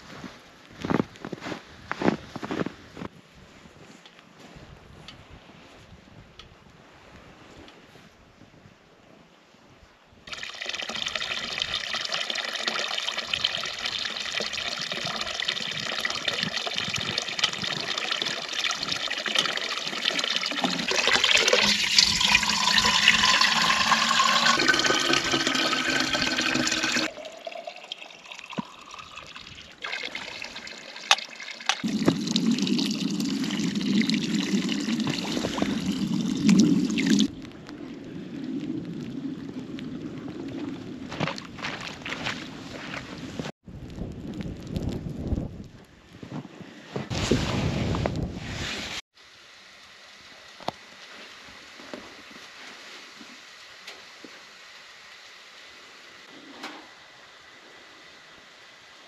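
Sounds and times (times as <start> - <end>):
deeper running water: 10.3 - 37.3
water filling metal teapot: 10.3 - 37.3.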